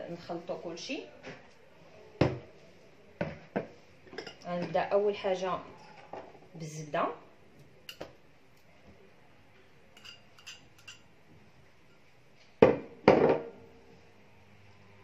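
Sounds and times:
kitchenware clinking: 0:04.1 - 0:04.7, 0:09.9 - 0:11.1.

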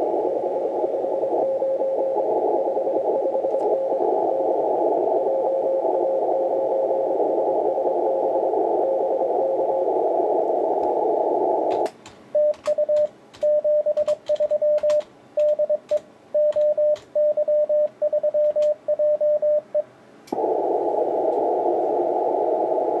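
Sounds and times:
faint morse signal: 0:00.0 - 0:11.7, 0:12.4 - 0:23.0
radio band hiss: 0:00.0 - 0:11.9, 0:20.3 - 0:23.0
sharp clicks: 0:11.7 - 0:17.1
morse sidetone: 0:12.4 - 0:19.8.

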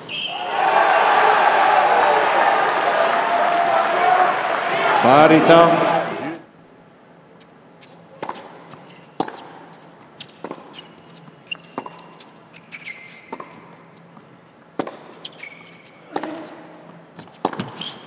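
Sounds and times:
shoe squeaks: 0:00.0 - 0:00.4, 0:08.8 - 0:09.2, 0:10.2 - 0:13.6, 0:15.2 - 0:16.6, 0:17.5 - 0:18.0
rackets hitting tennis ball: 0:07.9 - 0:12.3, 0:14.8 - 0:15.4, 0:16.1 - 0:18.0
tennis ball bouncing: 0:08.2 - 0:12.3, 0:13.1 - 0:15.4, 0:16.1 - 0:16.6, 0:17.2 - 0:18.0.

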